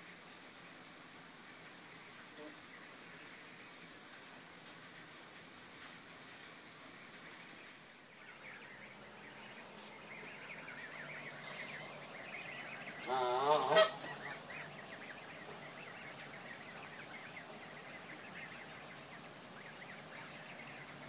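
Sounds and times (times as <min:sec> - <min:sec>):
goslings peeping: 0:00.2 - 0:21.0
goose honking: 0:08.2 - 0:21.0.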